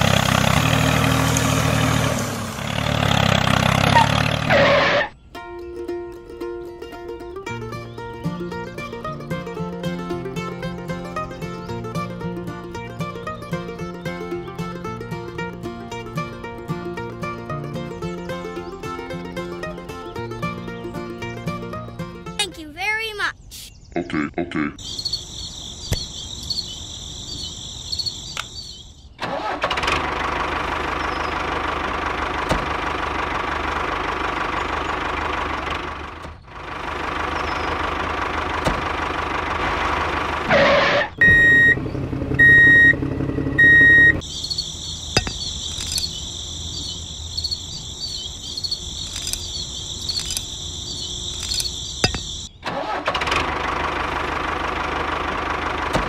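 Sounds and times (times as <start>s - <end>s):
tractor engine running: 0.0s - 22.6s, 24.8s - 56.0s
insects chirping: 24.8s - 29.2s, 43.6s - 52.6s.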